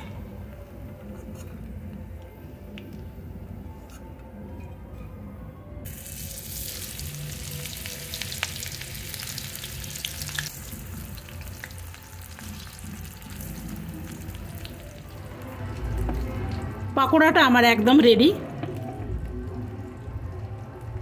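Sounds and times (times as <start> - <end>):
batter sizzling in hot oil: 5.9 - 15.8.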